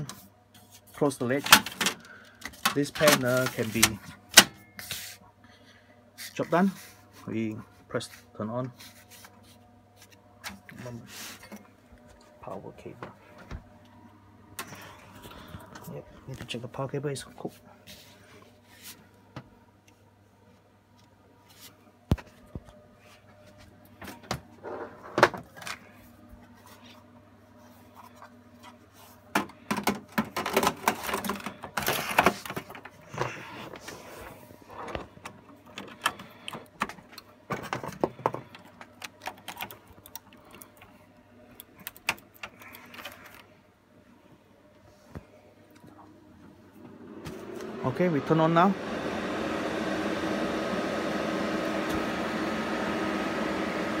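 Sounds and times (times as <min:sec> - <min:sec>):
cables and plugs clicking: 0:35.2 - 0:43.5.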